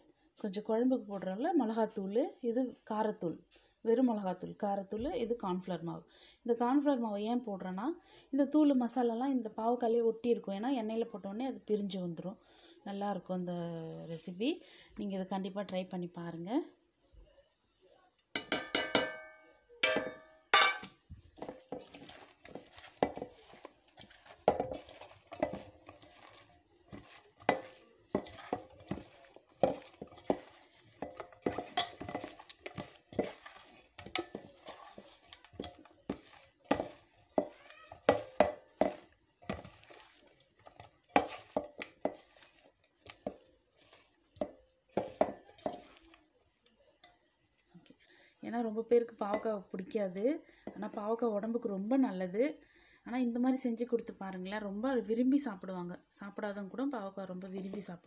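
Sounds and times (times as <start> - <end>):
metal bowl clinking on pot: 18.3 - 46.0, 49.3 - 49.6
vegetable pieces scraping steel pot: 19.8 - 46.2, 57.5 - 58.0.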